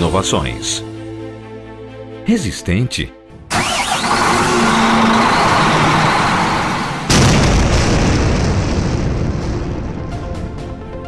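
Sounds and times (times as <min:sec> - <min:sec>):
loud rushing noise: 0:03.5 - 0:09.6
deep rock blast boom: 0:07.1 - 0:10.8.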